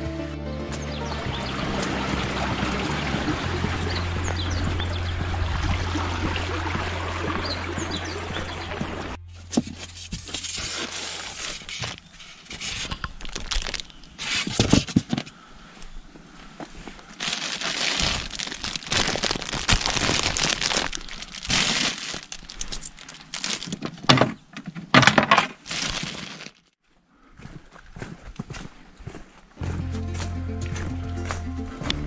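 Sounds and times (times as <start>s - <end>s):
plastic bags crinkling: 10.3s - 14.8s, 17.1s - 24.0s, 25.6s - 26.7s.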